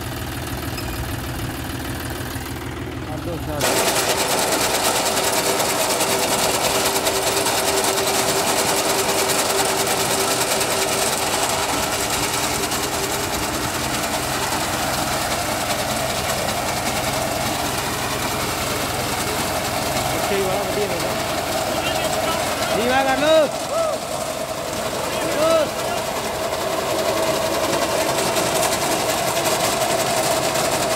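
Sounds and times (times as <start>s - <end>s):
tractor engine hum: 0.0s - 30.9s.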